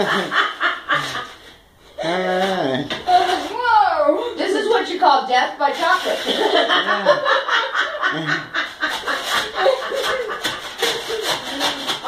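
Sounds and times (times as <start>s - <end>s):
women laughing: 0.0s - 1.5s, 6.2s - 11.8s
spatula scraping baking sheet: 5.6s - 6.8s, 8.6s - 12.0s.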